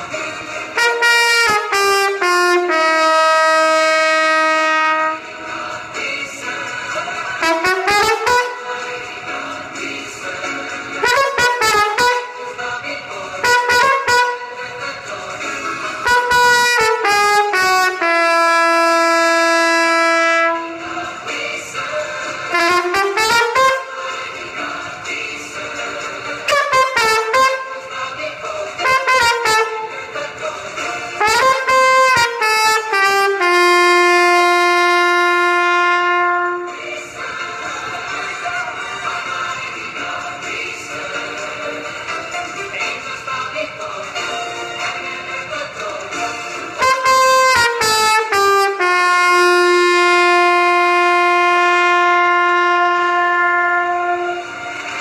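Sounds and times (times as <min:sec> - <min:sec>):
solo trumpet playing: 0:00.8 - 0:05.3, 0:07.4 - 0:08.8, 0:11.0 - 0:12.5, 0:13.4 - 0:14.6, 0:16.0 - 0:20.8, 0:22.5 - 0:24.0, 0:26.5 - 0:27.8, 0:28.8 - 0:30.0, 0:31.2 - 0:36.8, 0:46.8 - 0:54.6.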